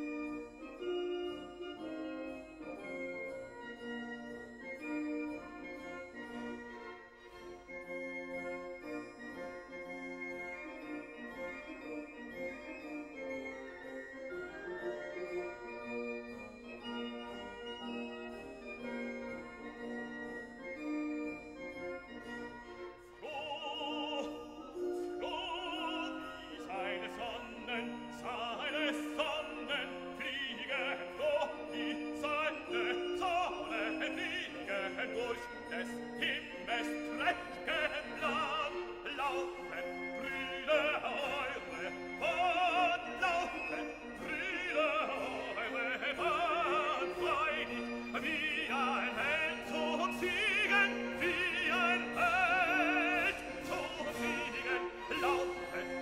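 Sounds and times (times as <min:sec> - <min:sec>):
classical accompaniment: 0:00.0 - 0:56.0
operatic singing voice: 0:23.1 - 0:56.0.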